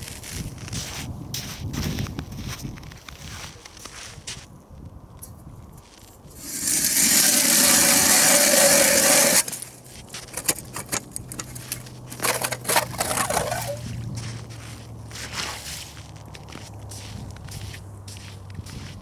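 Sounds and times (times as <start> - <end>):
ice chips crunching and clicking: 6.4 - 13.9
ice auger grinding scrape: 6.4 - 14.0.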